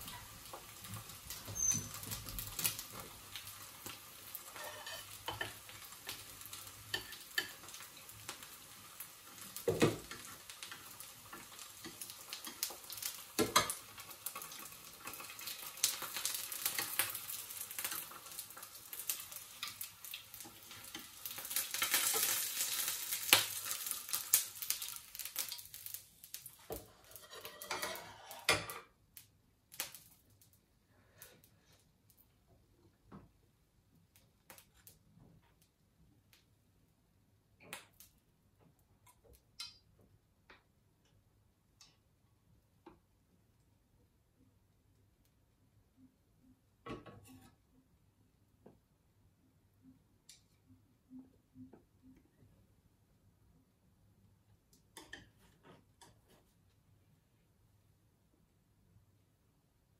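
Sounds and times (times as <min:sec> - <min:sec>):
food sizzling in oil: 0:00.0 - 0:28.9
spatula scraping a pan: 0:04.3 - 0:05.7, 0:06.8 - 0:07.8, 0:26.6 - 0:28.9, 0:47.1 - 0:47.6, 0:55.0 - 0:56.6.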